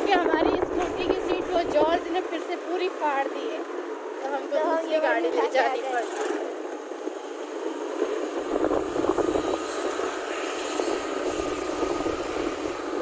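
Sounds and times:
wind rumbling on microphone: 0.0s - 2.4s, 6.9s - 13.0s
motor scooter engine: 0.0s - 13.0s.

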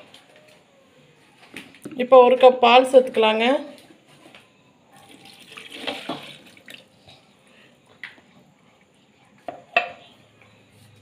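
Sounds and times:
milk pouring splashing: 5.0s - 7.0s.

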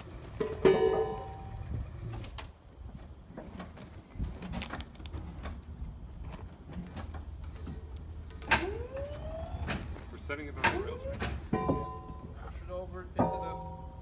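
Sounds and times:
ringing metal clang: 0.5s - 1.6s, 10.6s - 12.4s, 13.2s - 14.0s.

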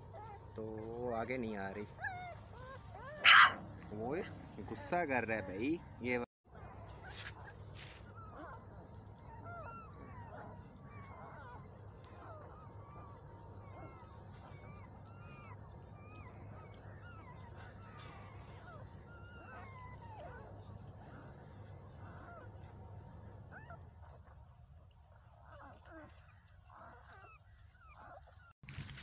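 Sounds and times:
puppies squeaking and whimpering: 0.0s - 5.7s, 9.2s - 21.3s.

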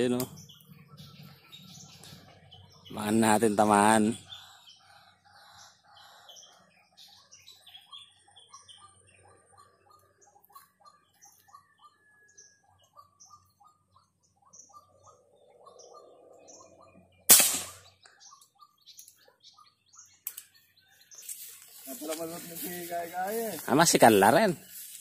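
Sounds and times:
high bird chirps: 0.0s - 25.0s
wild birds calling: 0.0s - 25.0s
loud airgun shot: 17.3s - 18.0s.

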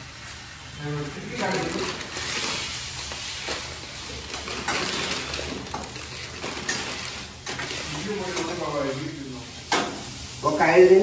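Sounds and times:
vegetables sizzling in a pan: 0.0s - 11.0s
spatula scraping a pan: 2.1s - 8.6s.

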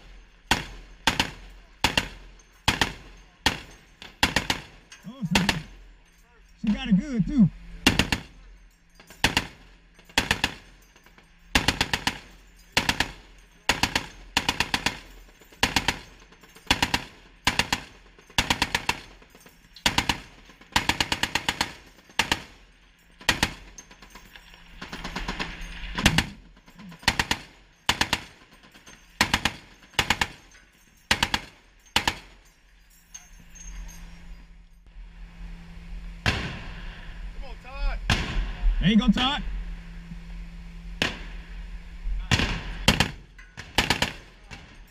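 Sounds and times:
heavy machine gun bursts: 0.0s - 5.8s, 11.5s - 19.2s, 23.2s - 30.5s.

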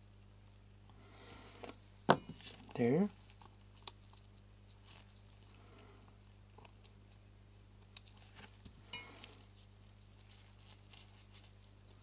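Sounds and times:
low steady hum: 0.0s - 12.0s
metallic clink: 8.9s - 9.3s.

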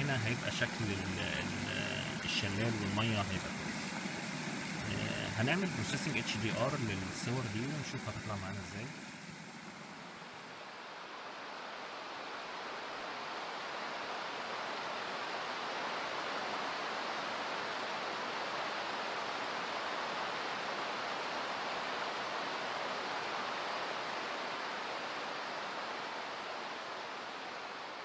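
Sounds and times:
water rushing down stone cascade: 0.0s - 10.6s.

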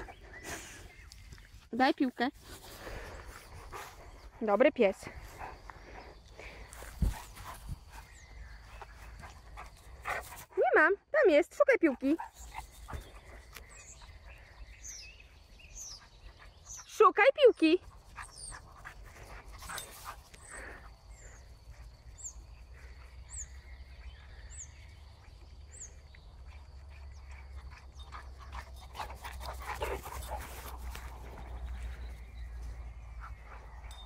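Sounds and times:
dog panting: 2.8s - 10.6s, 26.6s - 32.0s.

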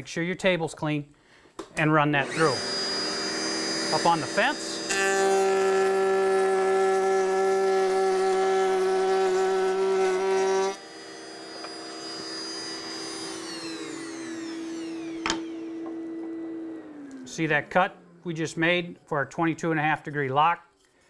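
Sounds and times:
table router whining: 2.2s - 18.4s.

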